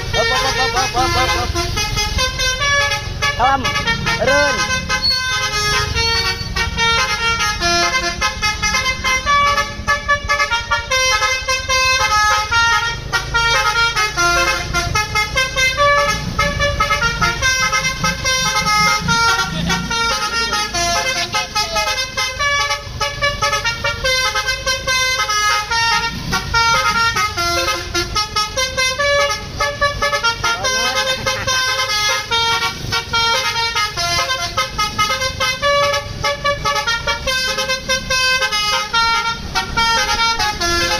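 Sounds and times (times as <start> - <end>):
bus engine rumble: 0.0 - 40.9
multi-tone bus horn melody: 0.0 - 40.9.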